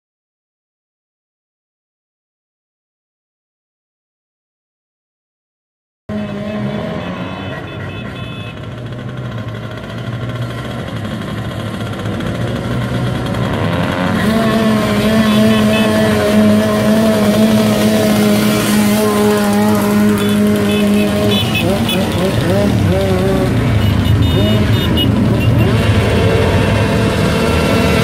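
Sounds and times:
motorcycles approaching: 0:06.1 - 0:28.0.

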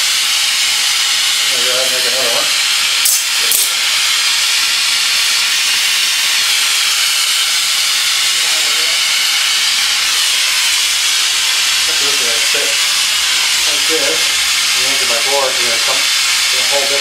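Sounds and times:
gas torch flame hissing: 0:00.0 - 0:17.0
sharp click: 0:03.0 - 0:03.7.

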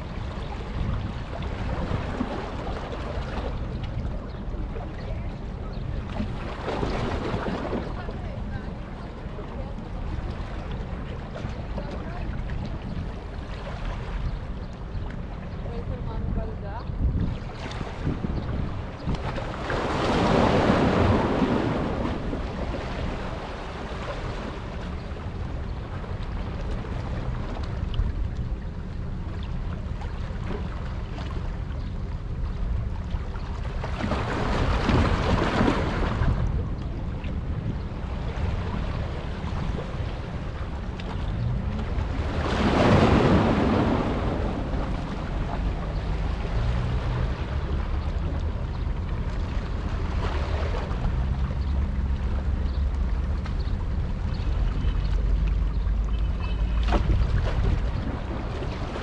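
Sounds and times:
sea water washing: 0:00.0 - 0:59.0
wind rushing over microphone: 0:14.0 - 0:29.2, 0:31.8 - 0:51.9.

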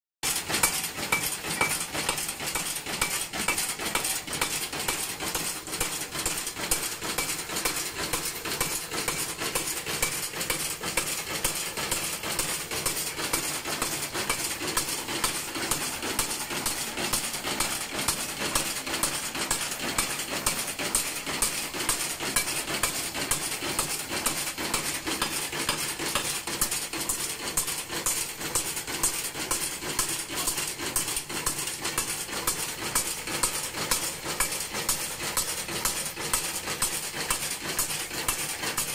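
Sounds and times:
power hammer clanking on metal: 0:00.2 - 0:38.9.

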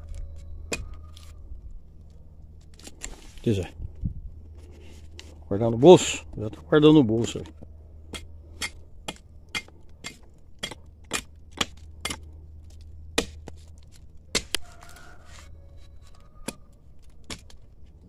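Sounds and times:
axe chopping tree trunk: 0:08.1 - 0:14.8, 0:16.4 - 0:17.6.

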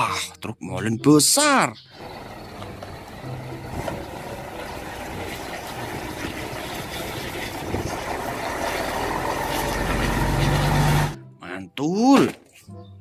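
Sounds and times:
diesel truck engine running: 0:01.9 - 0:11.2.

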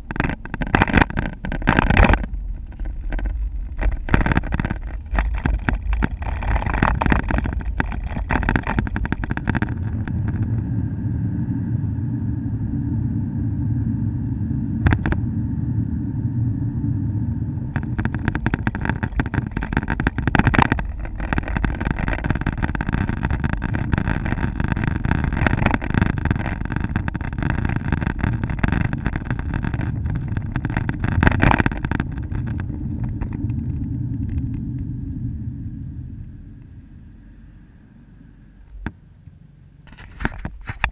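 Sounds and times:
wind buffeting microphone: 0:00.0 - 0:37.6
car engine and tyres rumbling: 0:00.0 - 0:40.9.

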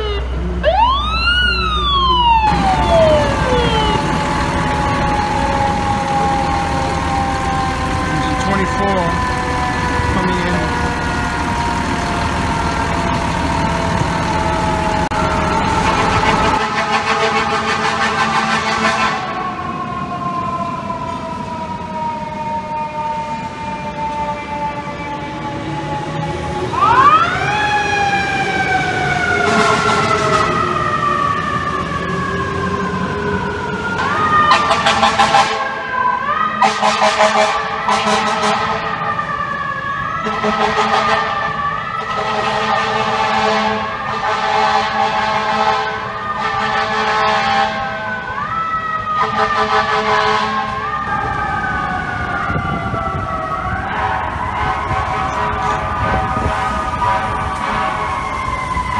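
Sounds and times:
fire truck mechanical siren wailing: 0:00.0 - 0:58.9
air horn blasts: 0:15.8 - 0:19.4, 0:29.5 - 0:30.4, 0:34.5 - 0:35.7, 0:36.6 - 0:38.9, 0:40.2 - 0:48.1, 0:49.2 - 0:50.8, 0:53.9 - 0:58.4.

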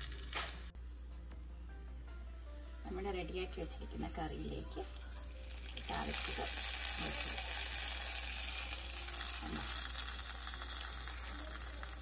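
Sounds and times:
hot oil sizzling: 0:00.0 - 0:00.7, 0:04.4 - 0:12.0.

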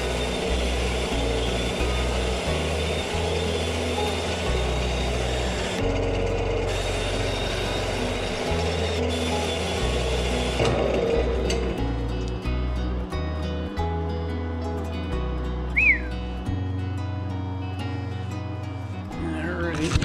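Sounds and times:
lathe running: 0:00.0 - 0:12.6
background music with bass line: 0:00.0 - 0:20.0.

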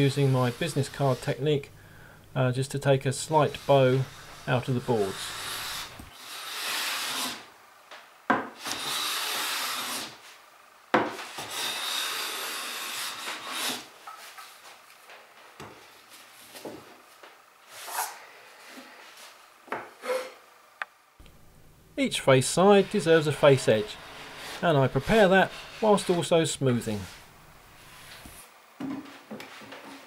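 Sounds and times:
hand plane shaving wood: 0:03.4 - 0:07.4, 0:22.6 - 0:26.3.

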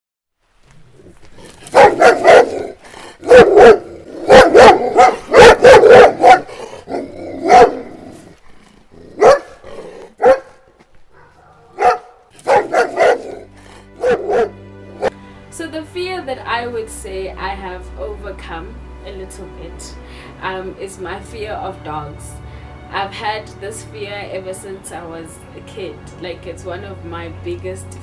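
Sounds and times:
dog barking loudly: 0:01.6 - 0:08.0, 0:09.1 - 0:15.1.

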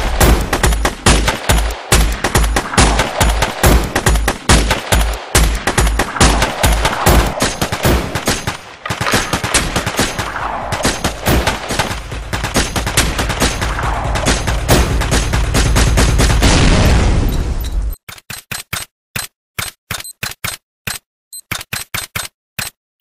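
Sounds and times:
automatic gunfire: 0:00.1 - 0:16.6
deep rumble: 0:10.2 - 0:17.1.

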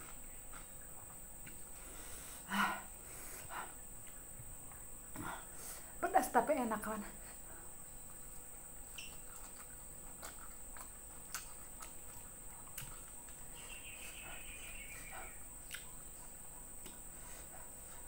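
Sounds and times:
chewing mouth smacks: 0:08.9 - 0:13.5, 0:15.2 - 0:17.0.

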